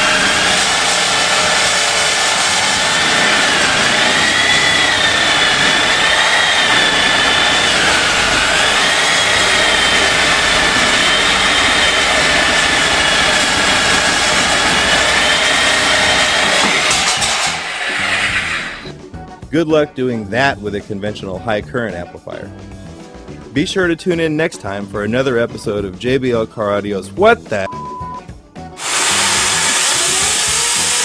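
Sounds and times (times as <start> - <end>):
power tool cutting metal: 0.0 - 18.9, 28.8 - 31.0.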